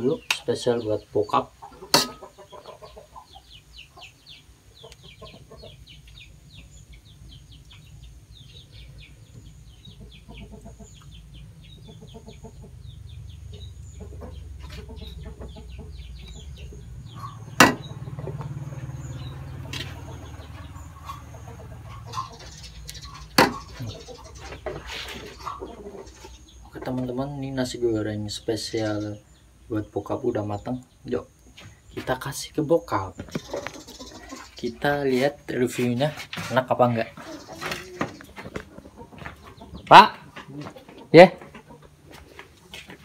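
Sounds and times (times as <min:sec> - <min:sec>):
chickens clucking: 0:00.0 - 0:43.0
spatula clanking on wok: 0:01.9 - 0:02.2.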